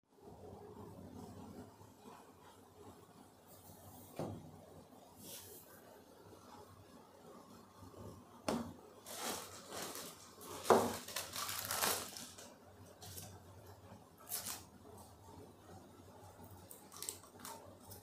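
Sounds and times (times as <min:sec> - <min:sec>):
plastic bags crinkling: 0:09.0 - 0:13.4, 0:14.2 - 0:14.7, 0:16.7 - 0:18.0.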